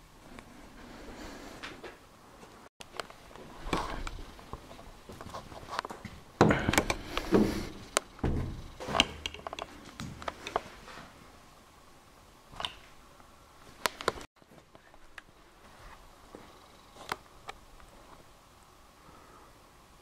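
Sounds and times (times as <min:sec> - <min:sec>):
knocks thuds and clatter: 0:06.4 - 0:09.4.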